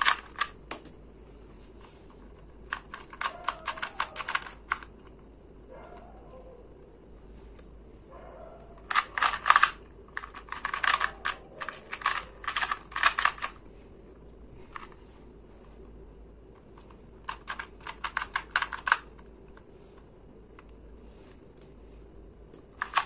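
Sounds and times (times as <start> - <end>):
puzzle cube clicking: 0.0 - 1.0, 2.6 - 4.9, 8.8 - 13.6, 16.8 - 19.7, 22.6 - 23.0.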